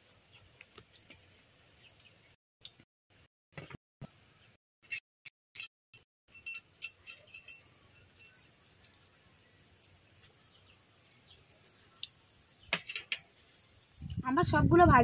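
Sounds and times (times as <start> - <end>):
food sizzling in oil: 0.0 - 2.4, 6.3 - 15.0
sharp oil crackles: 0.0 - 2.9, 6.3 - 15.0.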